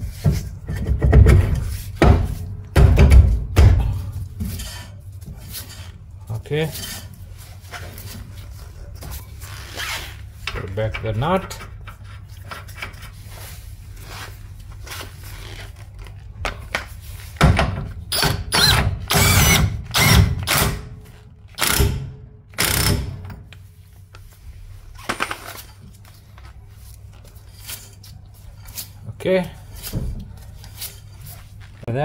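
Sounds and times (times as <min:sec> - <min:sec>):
impact wrench bursts: 0:18.1 - 0:23.3.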